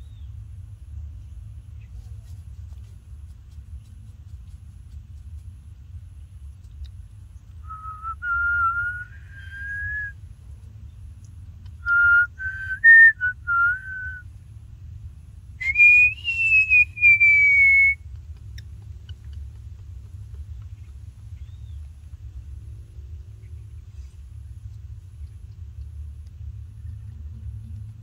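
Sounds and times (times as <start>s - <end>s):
person whistling a tune: 7.6s - 10.1s, 11.8s - 14.2s, 15.6s - 18.0s.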